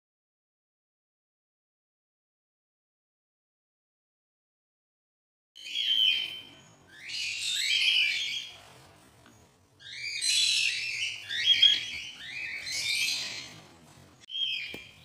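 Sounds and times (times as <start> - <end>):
cockatiel chicks screeching: 5.6 - 9.0, 9.8 - 15.0.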